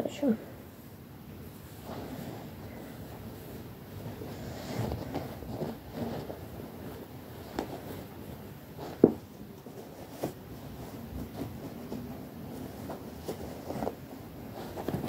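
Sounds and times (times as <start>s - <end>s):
cloth rustling: 0.7s - 15.0s.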